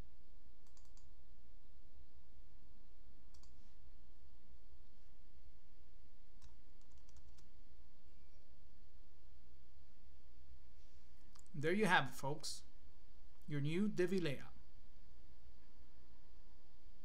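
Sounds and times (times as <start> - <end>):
steady low hum: 0.0 - 17.0
computer mouse clicks: 0.6 - 1.1, 3.3 - 3.7, 6.4 - 7.5, 11.3 - 11.6.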